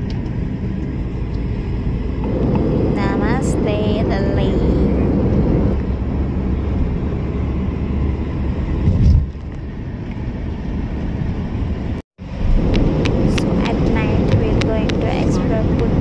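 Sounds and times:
car road and engine rumble: 0.0s - 16.0s
low thump: 8.8s - 9.3s.

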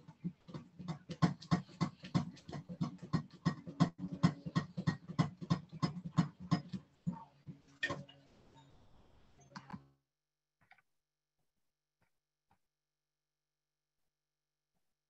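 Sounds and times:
utensil beating in mixing bowl: 0.0s - 7.0s.

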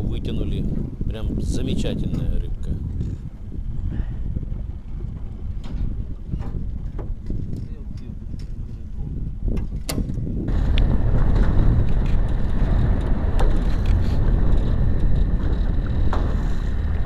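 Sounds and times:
wind on microphone: 0.0s - 17.0s
boat motor running: 10.5s - 17.0s.

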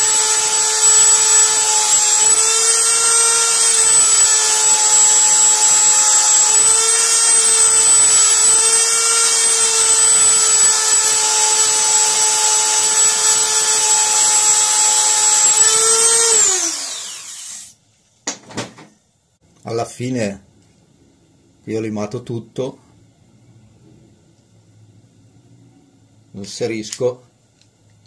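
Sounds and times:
rotary tool whining: 0.0s - 17.8s.

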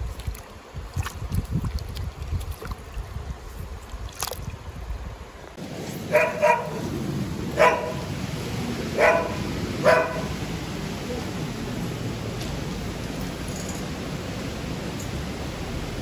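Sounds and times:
water splashing: 0.0s - 16.0s
dog barking: 6.1s - 6.8s, 7.6s - 8.1s, 9.0s - 10.4s.

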